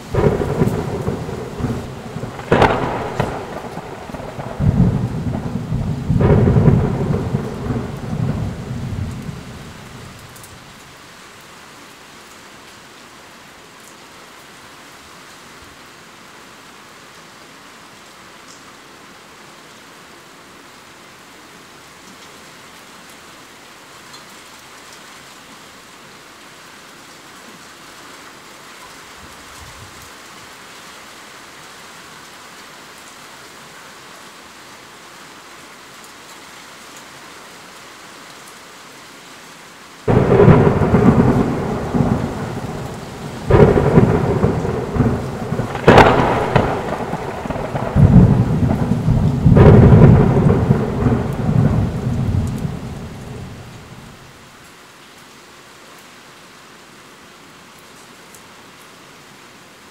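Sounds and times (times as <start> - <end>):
heavy rain hiss: 0.0 - 59.9
thunder cracks and rumbling: 0.1 - 10.1, 40.1 - 54.1.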